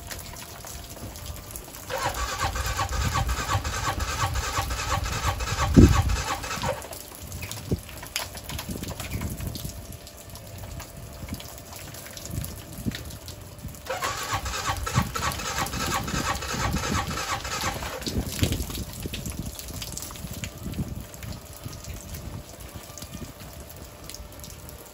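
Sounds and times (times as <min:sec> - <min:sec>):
atv engine starting: 0:01.9 - 0:07.0, 0:13.8 - 0:18.6.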